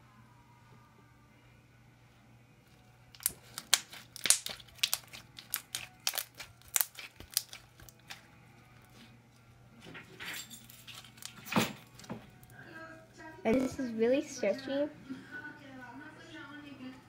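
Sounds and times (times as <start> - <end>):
slime squishing with wet pops: 3.2 - 8.2.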